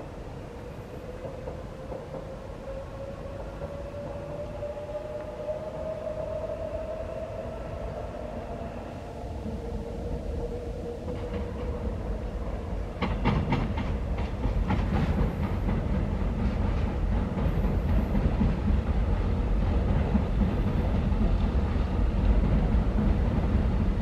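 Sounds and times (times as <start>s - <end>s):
train rumbling on track: 0.0s - 24.0s
wheels clacking over rail joints: 11.0s - 24.0s.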